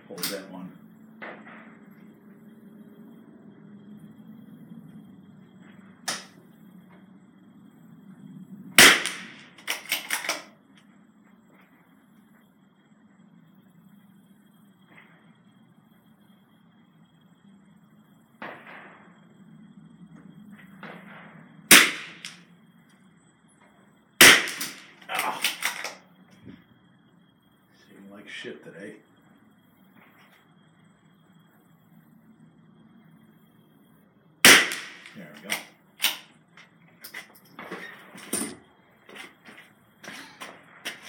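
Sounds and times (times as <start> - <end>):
quiet sharp crack: 6.1 - 6.4
rifle shot: 8.8 - 10.5, 20.8 - 22.4, 24.2 - 25.9, 34.4 - 36.2.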